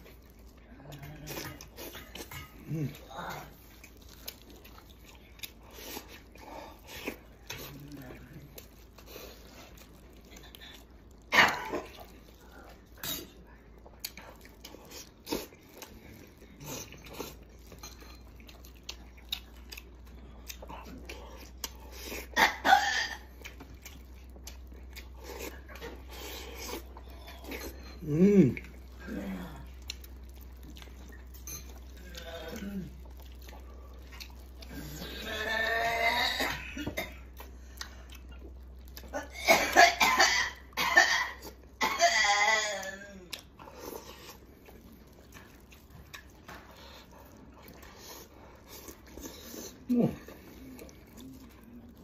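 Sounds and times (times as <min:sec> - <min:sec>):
man chewing with mouth smacks: 0:00.0 - 0:52.0
man coughing: 0:39.2 - 0:42.2.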